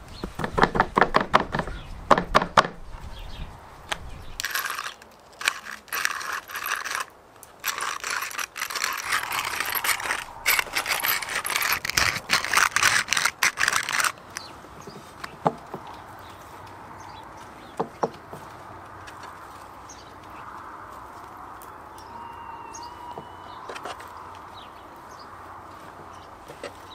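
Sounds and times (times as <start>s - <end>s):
hand spice mill grinding: 4.4s - 14.5s.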